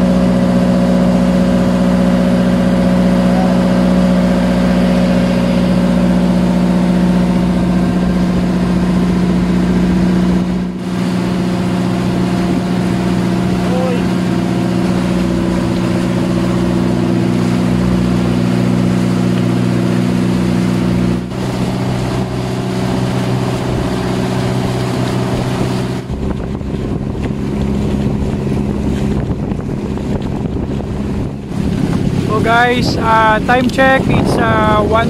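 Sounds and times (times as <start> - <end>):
boat engine humming: 0.0 - 35.0
water rushing past hull: 0.0 - 35.0
wind rushing: 21.3 - 35.0.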